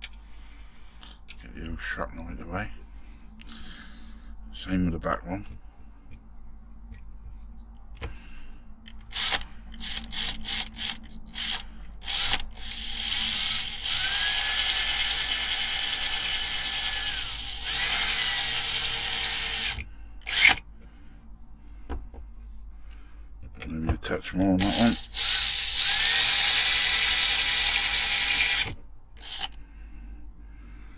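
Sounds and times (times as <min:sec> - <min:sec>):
electric drill drilling: 0:09.1 - 0:20.6, 0:24.6 - 0:29.6.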